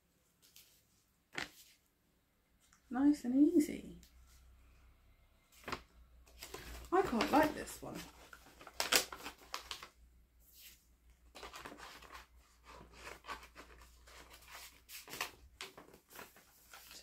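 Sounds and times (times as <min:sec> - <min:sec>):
paper packaging rustling: 0:05.5 - 0:17.0.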